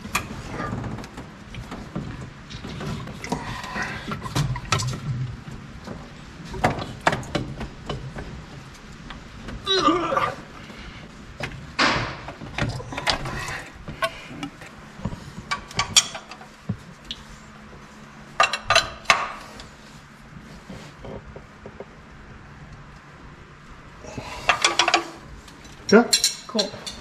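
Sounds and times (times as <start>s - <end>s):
metal tools clinking: 24.5s - 27.0s.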